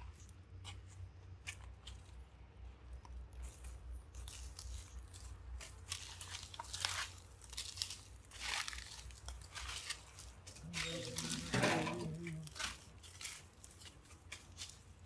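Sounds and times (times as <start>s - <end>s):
footsteps crunching on dry leaves: 3.4s - 15.0s.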